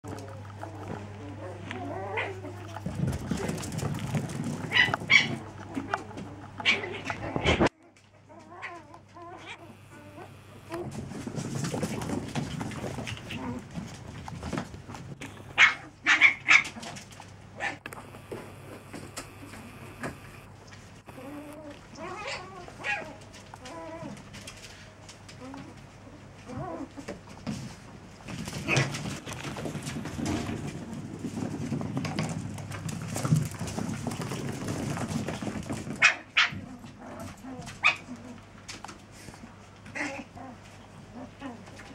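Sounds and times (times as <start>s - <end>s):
puppies growling: 0.0s - 41.9s
puppies yapping: 0.5s - 7.7s, 8.3s - 11.3s, 15.2s - 17.0s, 21.1s - 24.1s
puppy yips: 15.6s - 16.8s.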